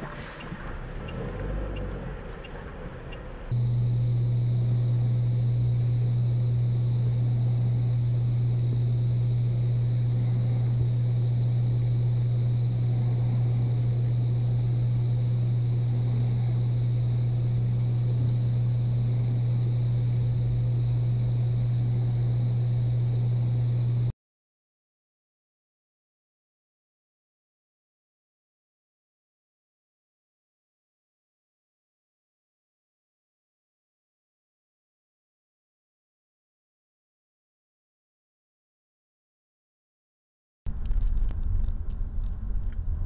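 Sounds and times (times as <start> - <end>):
car engine and road noise drone: 0.0 - 24.1.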